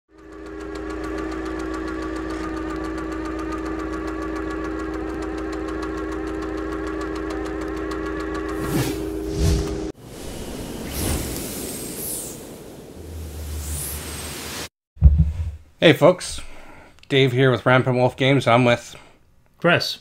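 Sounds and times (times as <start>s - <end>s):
mechanical hum: 0.1s - 14.7s.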